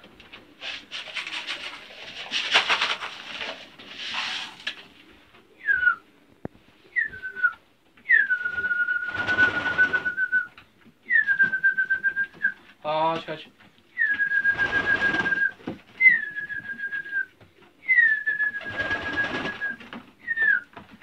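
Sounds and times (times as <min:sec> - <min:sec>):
pigeon wings flapping: 0:00.1 - 0:04.8, 0:08.1 - 0:10.5, 0:14.0 - 0:17.2, 0:18.0 - 0:21.0
person whistling: 0:05.6 - 0:06.0, 0:06.9 - 0:10.5, 0:11.1 - 0:12.6, 0:14.0 - 0:20.7.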